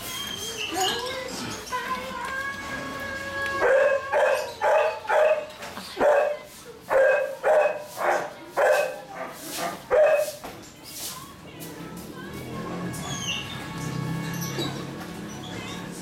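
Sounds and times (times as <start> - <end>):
puppies yapping and barking: 3.2 - 10.4.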